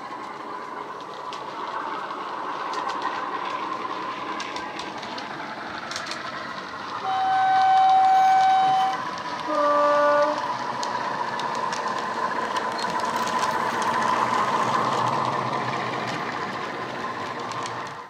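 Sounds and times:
diesel engine sound: 0.0s - 18.0s
two-tone train horn: 7.0s - 10.4s.

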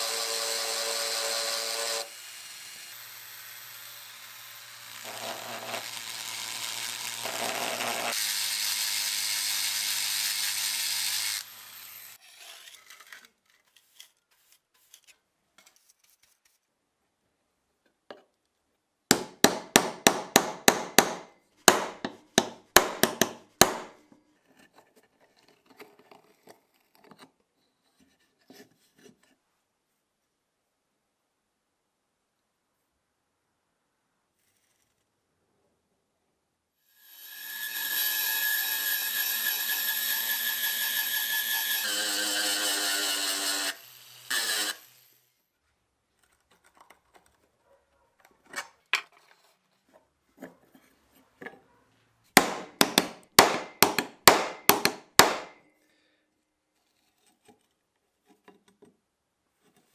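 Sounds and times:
rotary tool grinding steel: 0.0s - 13.3s, 37.0s - 45.3s
faint handling sounds: 12.2s - 18.9s, 24.0s - 30.4s, 45.5s - 52.3s, 55.7s - 59.9s.

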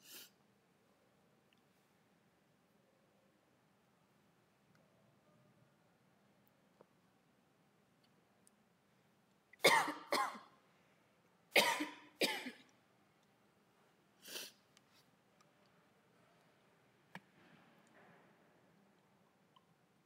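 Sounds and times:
person coughing: 9.6s - 10.5s, 11.6s - 12.7s.

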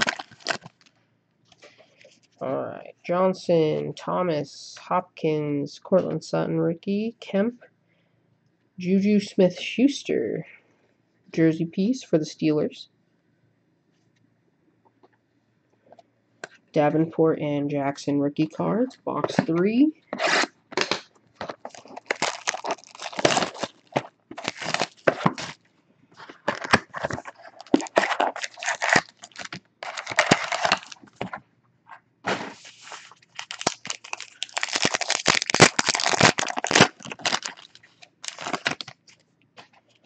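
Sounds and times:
foil wrappers tearing and crackling: 0.0s - 0.9s, 20.4s - 25.6s, 26.2s - 31.3s, 32.5s - 39.2s.

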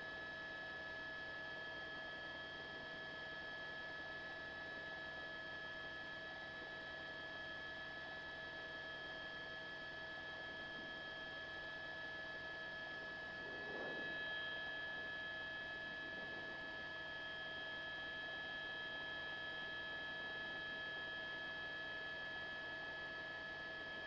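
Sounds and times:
helicopter cabin whine: 12.2s - 22.5s.

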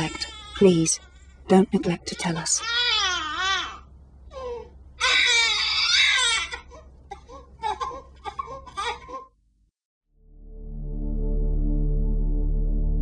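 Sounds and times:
baby crying: 0.0s - 1.3s, 2.1s - 9.4s
music: 10.1s - 13.0s.

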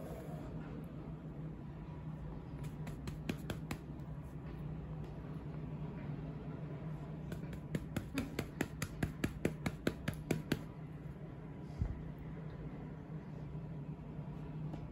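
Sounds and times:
hand patting baby softly: 2.6s - 3.9s.

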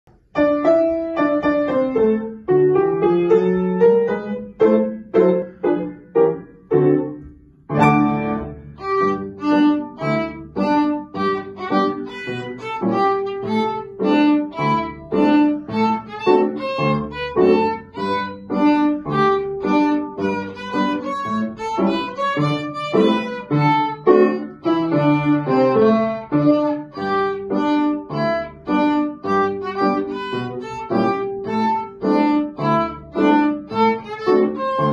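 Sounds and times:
piano accompaniment: 0.1s - 34.9s
violin playing: 7.8s - 34.9s.

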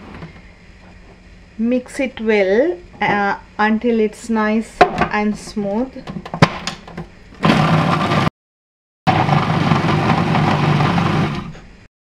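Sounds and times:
food processor running: 7.4s - 8.3s, 9.1s - 11.8s.

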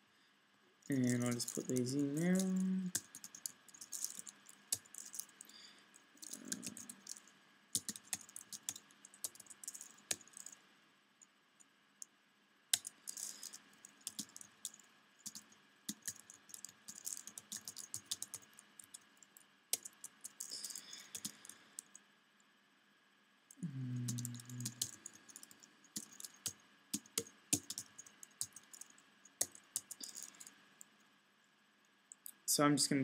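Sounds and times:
typing on computer keyboard: 1.0s - 5.6s, 6.2s - 10.6s, 12.7s - 22.0s, 24.0s - 30.5s.

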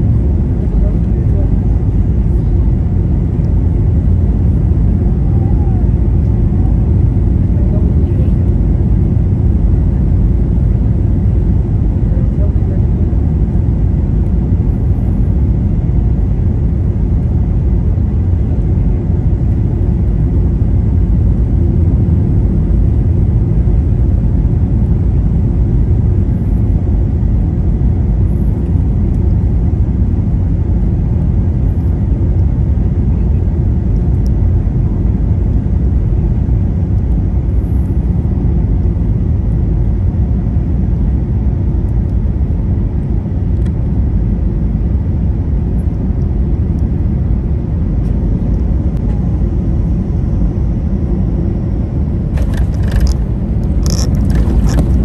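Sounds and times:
airplane cabin engine roar: 0.0s - 55.0s
rushing airflow: 52.1s - 55.0s.

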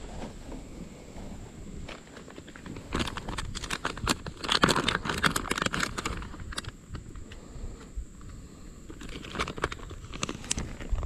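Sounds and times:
plastic bag crinkling: 2.1s - 6.7s, 9.0s - 11.0s.

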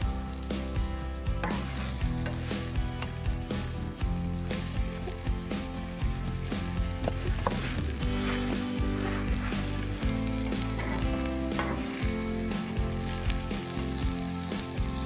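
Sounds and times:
oil sizzling in a frying pan: 0.0s - 15.0s
spatula pressing food in pan: 1.3s - 3.4s, 4.2s - 13.6s.

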